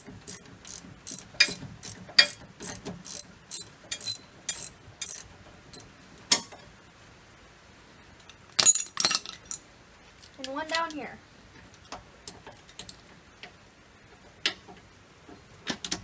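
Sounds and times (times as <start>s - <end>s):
ratchet wrench clicking: 0.0s - 5.8s.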